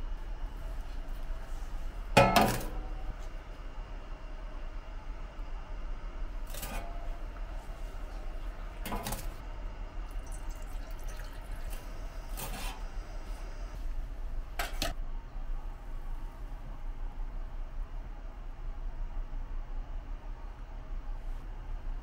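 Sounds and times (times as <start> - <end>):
steel cup scraping on metal: 12.3 - 12.9.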